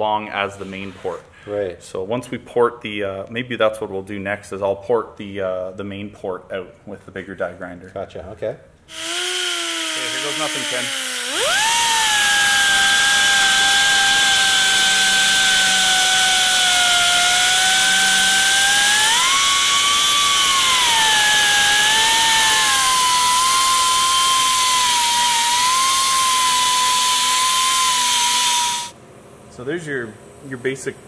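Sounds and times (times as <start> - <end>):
air die grinder whining: 8.9 - 29.0.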